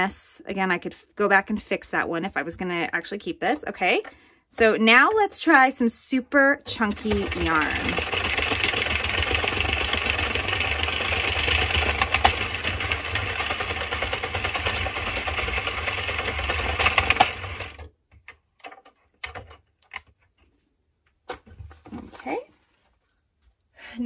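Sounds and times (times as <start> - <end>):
knitting machine needles clattering: 6.7 - 17.9.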